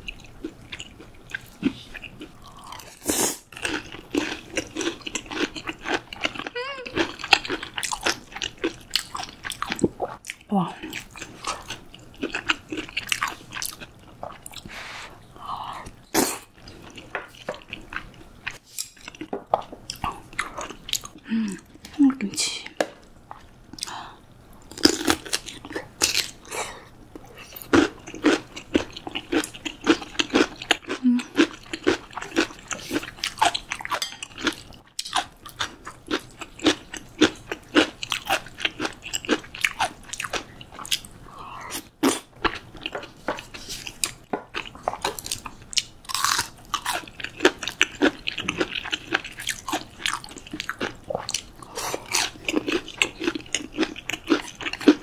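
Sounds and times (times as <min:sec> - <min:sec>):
crunching and chewing: 0:00.0 - 0:14.7, 0:24.6 - 0:26.6, 0:27.2 - 0:55.0
wet chewing: 0:41.7 - 0:55.0.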